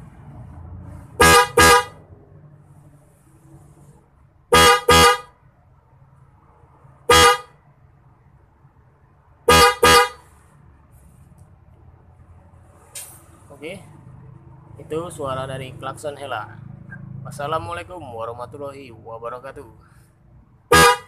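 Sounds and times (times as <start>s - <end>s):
twin-tone electric horn honks: 1.2s - 1.9s, 9.5s - 10.2s, 20.7s - 21.0s.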